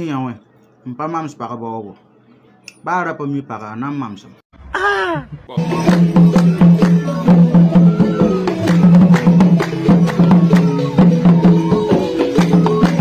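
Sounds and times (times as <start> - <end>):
sharp percussion strikes: 5.5 - 13.0
traditional music with drums: 5.5 - 13.0.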